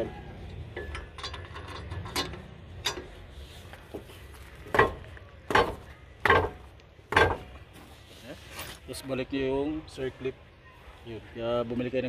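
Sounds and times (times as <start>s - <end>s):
hard knocks on metal bar: 4.7s - 7.5s.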